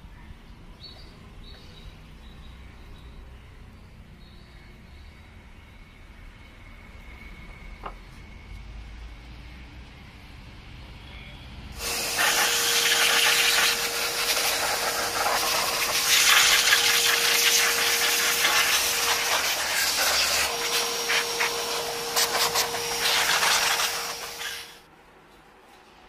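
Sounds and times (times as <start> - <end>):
air hose rushing with motor whine: 11.8 - 24.8.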